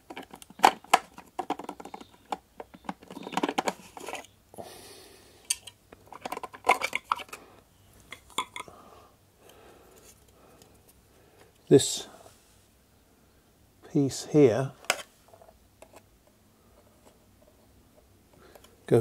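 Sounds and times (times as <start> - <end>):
plastic parts clicking and rattling: 0.0 - 4.3, 5.4 - 7.4, 8.0 - 8.7.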